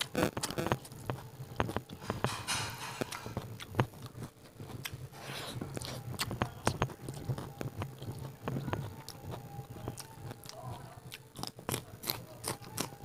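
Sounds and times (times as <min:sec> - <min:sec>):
chewing with wet mouth clicks: 0:03.4 - 0:05.0, 0:05.6 - 0:13.0.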